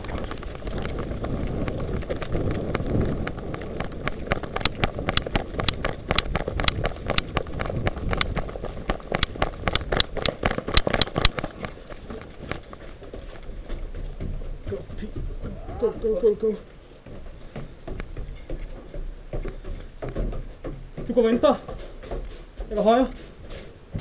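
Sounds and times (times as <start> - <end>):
wind rumble on microphone: 0.0 - 12.7
running footsteps: 0.0 - 24.0.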